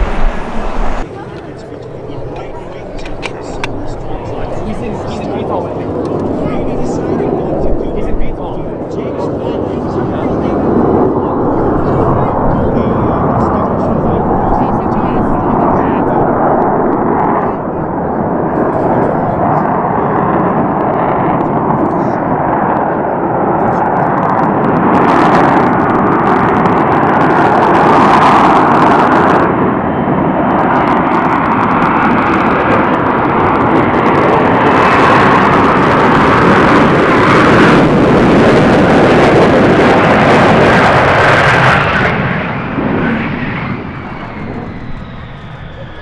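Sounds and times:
jet engine rumble with crackling: 0.0s - 46.0s.

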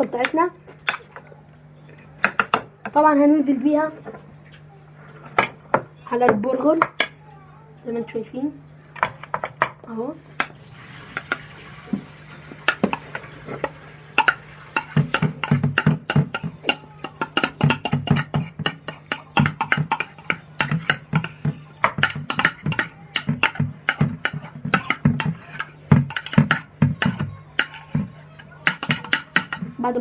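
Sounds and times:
utensils scraping crockery: 10.3s - 30.0s.

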